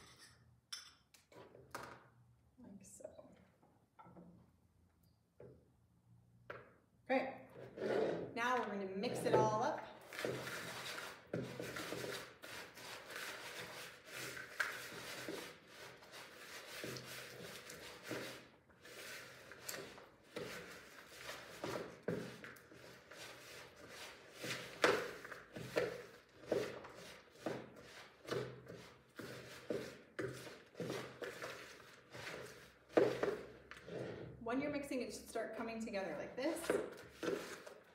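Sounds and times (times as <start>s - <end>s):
spoon stirring in plastic bowl: 7.6s - 34.2s, 36.6s - 37.9s.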